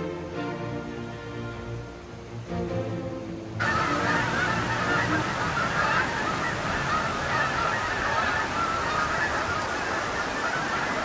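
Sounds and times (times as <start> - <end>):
flock of geese honking: 3.6 - 11.0.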